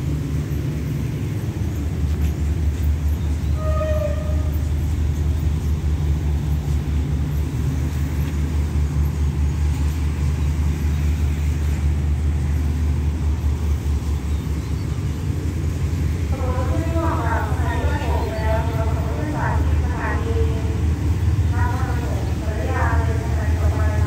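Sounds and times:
train engine humming: 0.0s - 24.0s.

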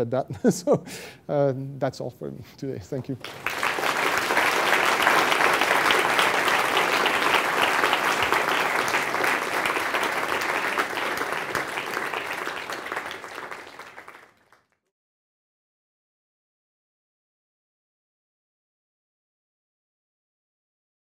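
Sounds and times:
audience applauding: 3.2s - 14.8s.

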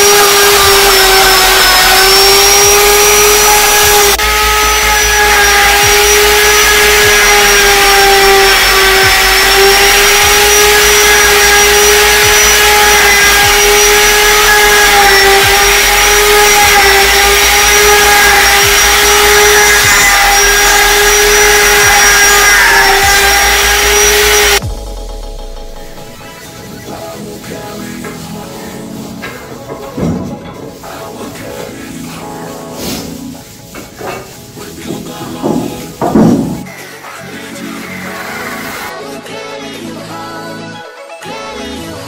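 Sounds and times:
router whining while cutting wood: 0.0s - 24.7s.

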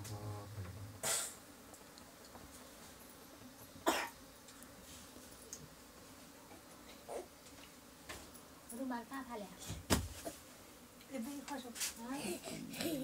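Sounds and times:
person coughing: 3.9s - 4.2s.

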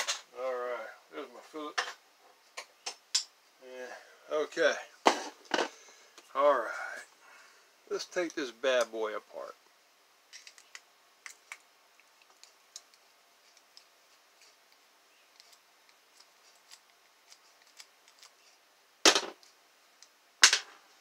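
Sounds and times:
screwdriver ticking and scraping: 12.0s - 18.5s.

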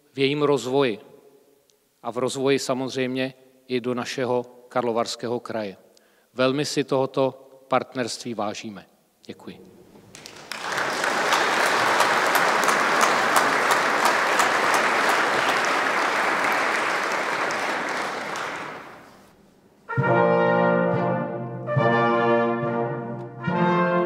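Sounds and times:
audience applauding: 10.0s - 19.3s
brass ensemble playing chords: 19.8s - 24.0s.

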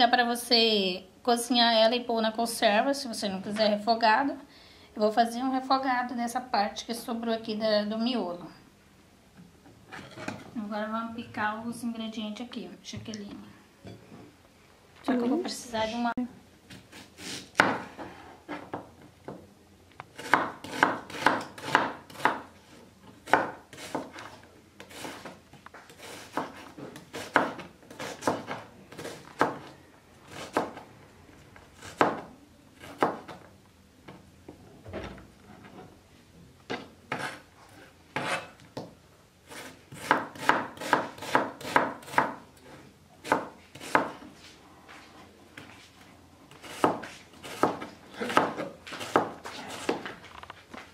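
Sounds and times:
knife chopping on plastic board: 20.2s - 22.5s, 23.2s - 25.4s, 26.0s - 29.7s, 31.9s - 33.4s, 39.9s - 42.4s, 43.2s - 44.2s, 46.6s - 50.0s.

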